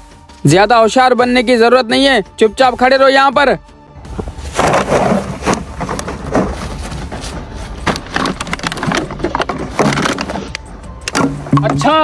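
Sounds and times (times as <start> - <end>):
plastic sack crinkling: 4.4 - 10.5.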